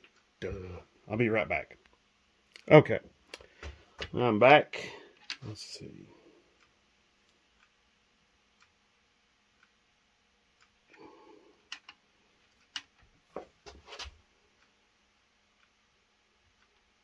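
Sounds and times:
faint ticking: 4.9 - 13.2.

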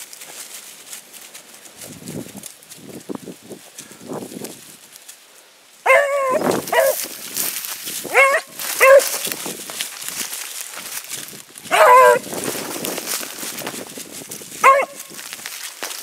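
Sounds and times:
dog pushing through dry leaves: 0.0 - 5.2, 5.8 - 16.0
dog baying: 5.8 - 7.1, 8.1 - 9.3, 11.7 - 12.3, 14.6 - 15.1.

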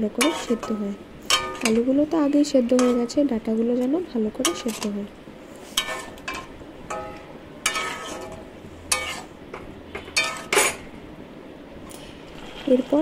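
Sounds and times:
spatula clinking against pan: 0.2 - 1.8, 2.7 - 3.2, 4.4 - 4.9, 5.8 - 9.3, 10.0 - 10.8
spatula scraping pan: 0.2 - 1.9, 2.7 - 3.2, 4.4 - 10.8, 12.0 - 13.0.

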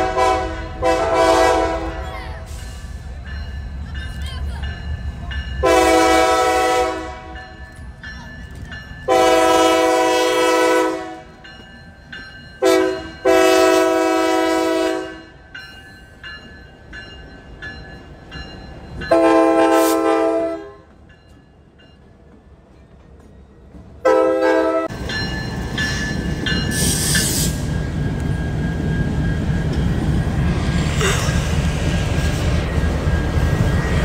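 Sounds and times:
locomotive air horn blasts: 0.0 - 2.6, 5.6 - 7.4, 9.1 - 11.3, 12.6 - 15.2, 19.1 - 20.9, 24.0 - 24.9
train wheel noise: 0.0 - 34.0.

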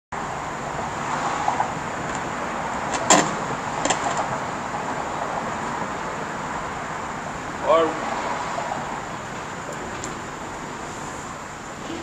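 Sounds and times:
street background noise: 0.1 - 12.0.

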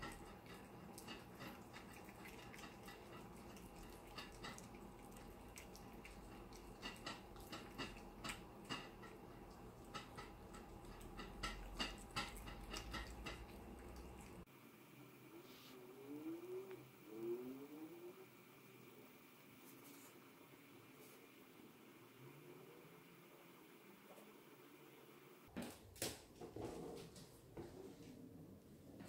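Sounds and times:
cats chewing and licking: 0.0 - 14.5
faint steady hum: 0.0 - 25.5.

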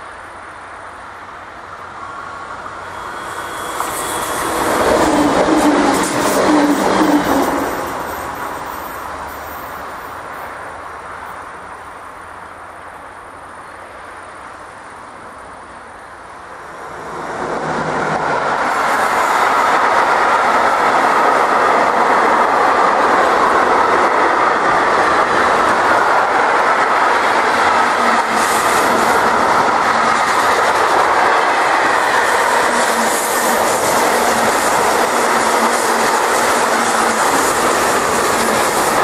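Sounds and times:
freight train wheels rumbling: 0.0 - 39.0.

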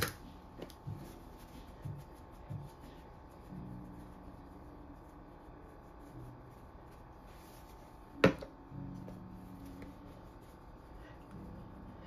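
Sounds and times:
shaker knocking on surface: 1.8 - 2.9.

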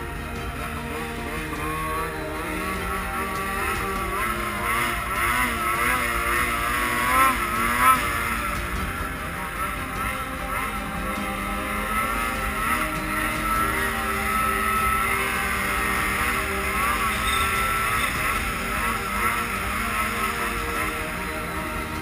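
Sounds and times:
snowmobile engine running: 0.0 - 22.0.

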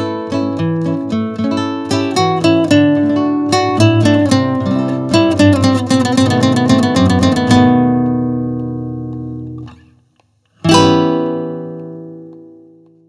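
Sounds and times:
plucked string music: 0.0 - 10.0, 10.6 - 13.0.

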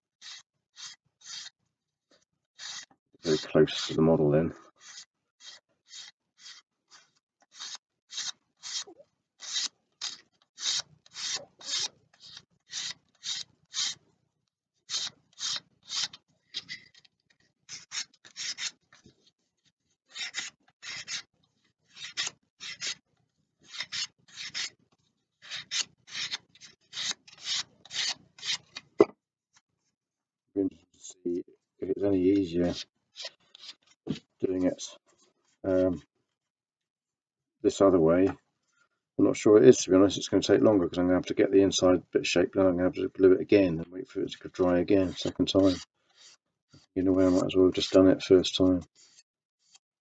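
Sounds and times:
hand sanding wood: 2.6 - 4.0, 45.1 - 46.4.

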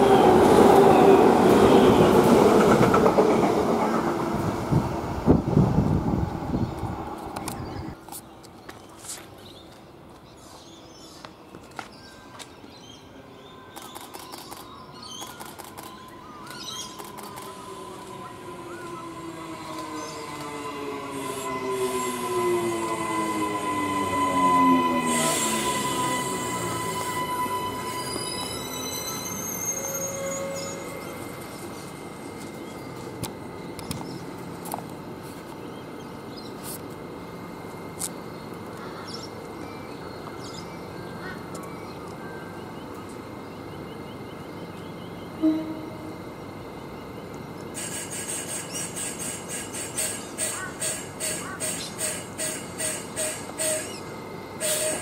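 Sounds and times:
train rail noise: 0.0 - 55.0
short clicks and chirps: 13.7 - 17.6
electric train motor whine: 15.8 - 35.2, 44.2 - 50.4.

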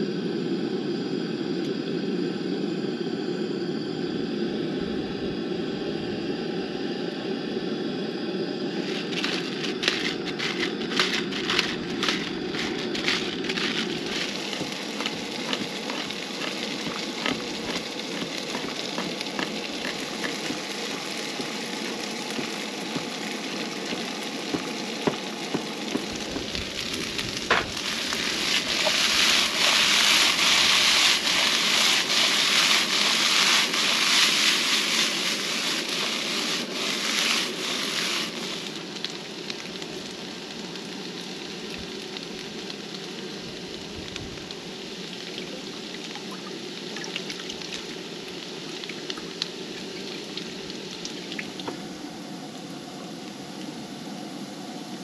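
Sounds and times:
potatoes sizzling in a frying pan: 8.7 - 53.5
small clicks and scrapes: 8.8 - 21.5.

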